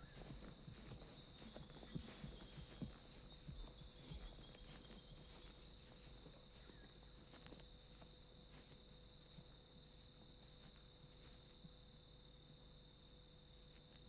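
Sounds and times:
horse hoofbeats: 0.0s - 5.6s
crickets chirring: 0.0s - 14.0s.

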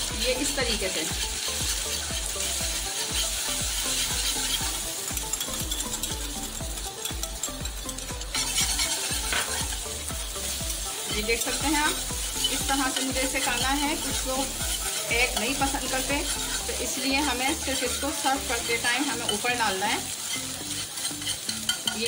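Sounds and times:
egg sizzling in hot oil: 0.0s - 22.0s
utensil scraping and tapping pan: 0.4s - 10.3s, 11.0s - 22.0s.

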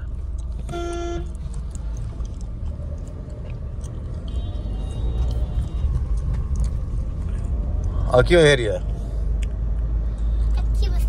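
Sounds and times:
road and engine rumble: 0.0s - 11.0s
short car horn toot: 0.7s - 1.4s.

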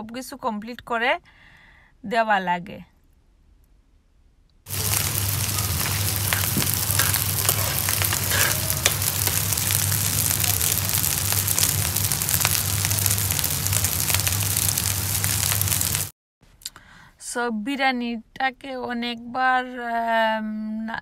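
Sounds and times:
food sizzling in a pan: 4.7s - 16.1s.

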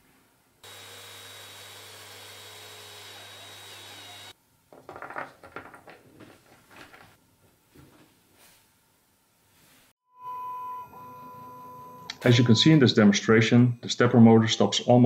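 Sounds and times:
cordless drill boring plastic: 0.6s - 4.4s
small clicks and rattles: 4.8s - 7.2s.

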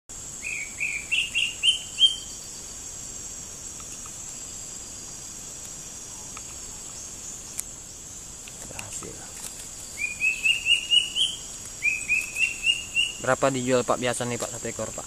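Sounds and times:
high-pitched insect drone: 0.1s - 15.0s
bird chirping: 0.3s - 2.8s, 6.0s - 13.8s.

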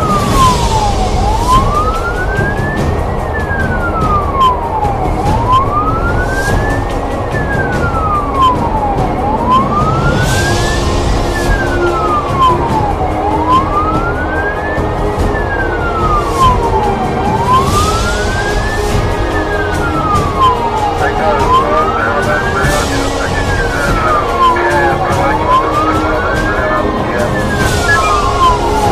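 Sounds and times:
fire engine siren wailing: 0.0s - 28.9s
truck engine and road noise: 0.0s - 28.9s.

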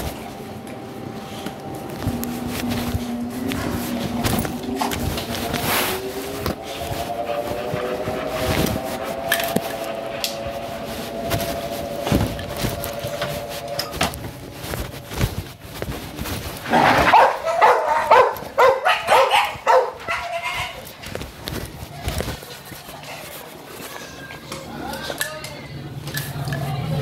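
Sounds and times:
steady whining tone: 0.0s - 16.7s
dog barking: 16.8s - 20.8s.

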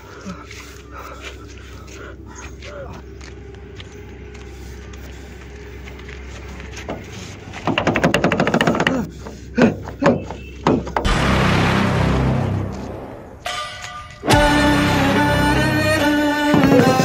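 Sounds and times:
music: 11.1s - 17.0s.

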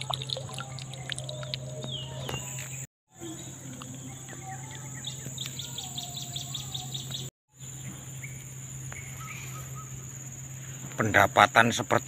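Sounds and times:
bird chirping: 0.0s - 10.8s
high insect drone: 2.3s - 12.0s
short bird whistles: 9.0s - 10.0s.

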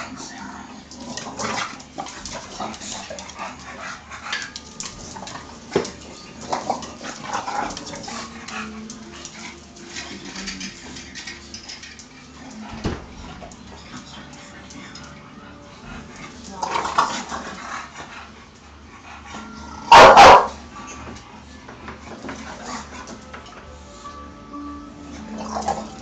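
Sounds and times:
scuffling and claws on tiles: 0.0s - 12.7s.

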